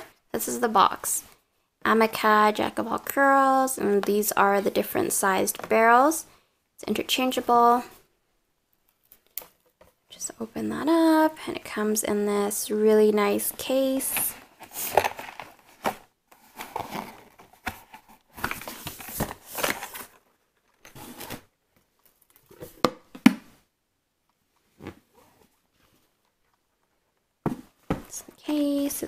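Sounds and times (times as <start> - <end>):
rustling and scraping of packaging: 13.3 - 22.8.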